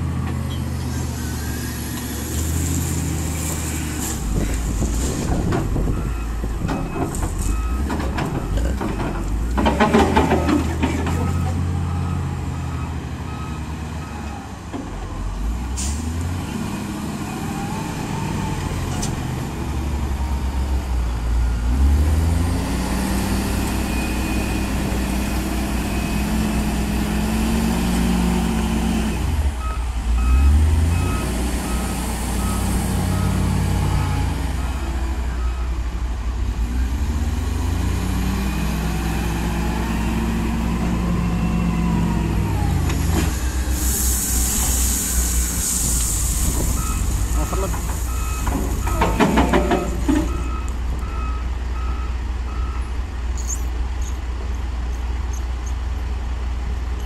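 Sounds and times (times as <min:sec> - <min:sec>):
reversing alarm beeping: 0:10.4 - 0:14.4, 0:29.6 - 0:35.7, 0:46.7 - 0:52.9
diesel engine revving: 0:15.2 - 0:53.2.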